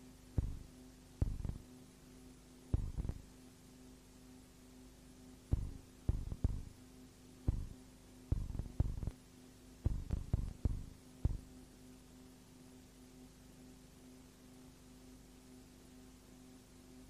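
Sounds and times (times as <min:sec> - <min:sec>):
steady low hum: 0:00.0 - 0:17.0
dull low thumps: 0:00.4 - 0:01.6, 0:02.8 - 0:03.2, 0:05.5 - 0:06.7, 0:07.5 - 0:09.1, 0:09.9 - 0:11.5.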